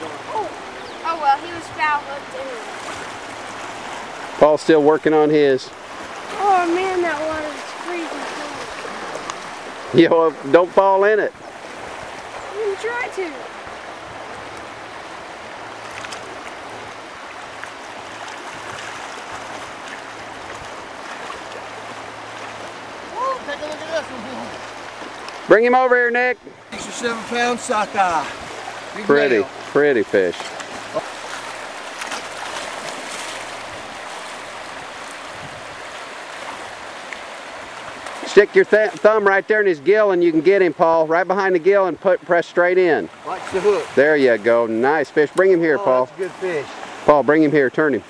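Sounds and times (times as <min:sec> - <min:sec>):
river water rushing over rocks: 0:00.0 - 0:48.0.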